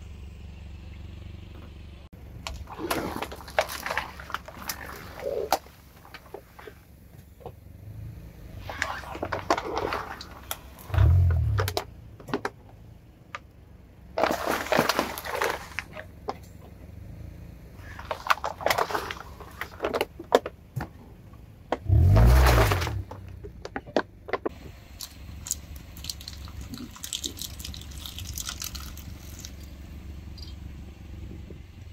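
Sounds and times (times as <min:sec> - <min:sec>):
plastic crackling and popping: 0:23.0 - 0:29.8.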